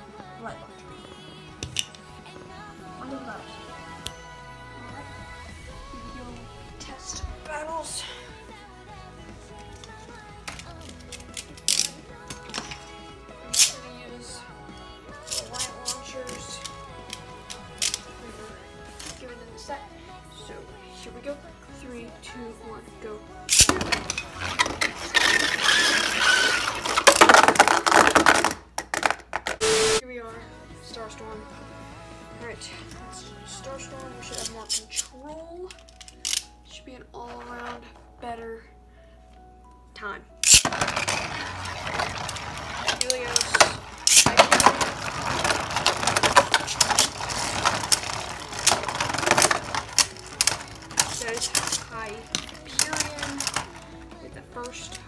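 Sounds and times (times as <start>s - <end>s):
spinning top scraping and rattling: 9.5s - 14.0s, 15.1s - 19.3s, 23.5s - 30.0s, 40.4s - 55.0s
spinning top clicks: 13.5s - 13.8s, 40.4s - 53.8s
spinning tops whirring: 23.5s - 27.4s.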